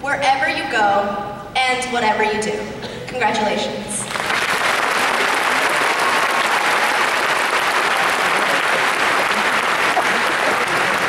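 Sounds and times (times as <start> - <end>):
large audience applauding: 4.1 - 11.0.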